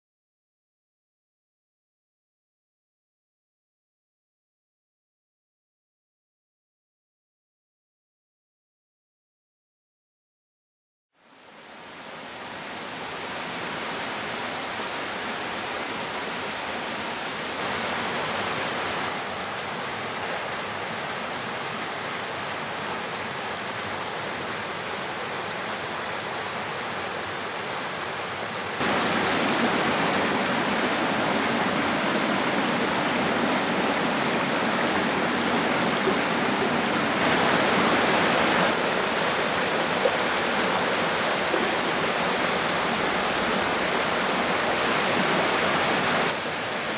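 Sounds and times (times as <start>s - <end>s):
stream flowing over rocks: 11.3s - 46.9s.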